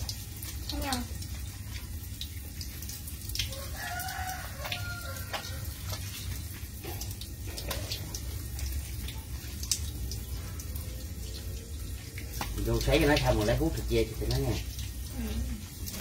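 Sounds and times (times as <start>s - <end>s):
water splashing and dripping: 0.0s - 16.0s
wet slaps: 12.3s - 12.6s.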